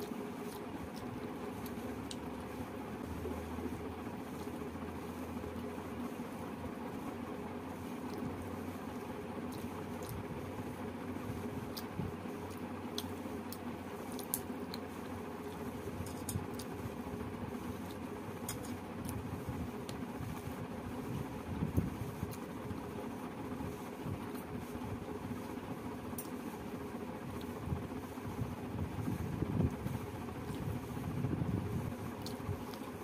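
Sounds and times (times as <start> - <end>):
steady low hum: 0.0 - 33.0
chewing: 11.6 - 16.7
small wet clicks: 11.7 - 14.9.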